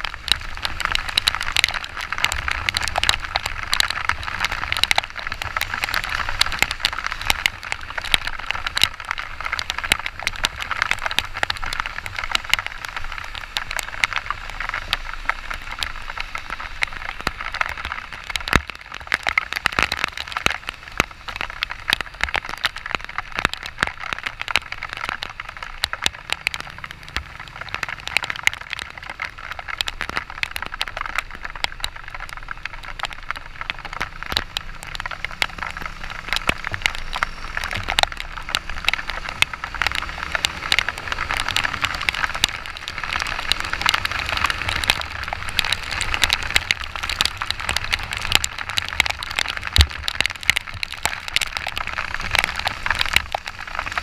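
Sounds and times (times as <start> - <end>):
heavy rain hitting camera: 0.0 - 54.0
wind of riding: 0.0 - 54.0
motorcycle engine drone: 25.3 - 29.3.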